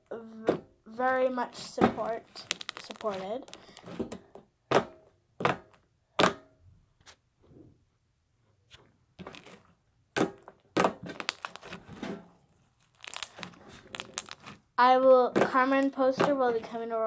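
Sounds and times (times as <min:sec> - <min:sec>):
slime squished by hand popping: 0:01.8 - 0:03.8, 0:10.2 - 0:11.8, 0:12.8 - 0:14.6.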